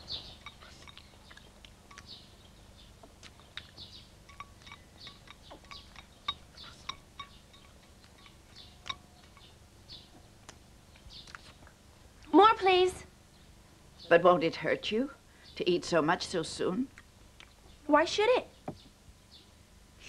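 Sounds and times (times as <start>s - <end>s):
soft chirping: 0.0s - 11.6s
tableware clinking and tapping: 4.2s - 9.6s.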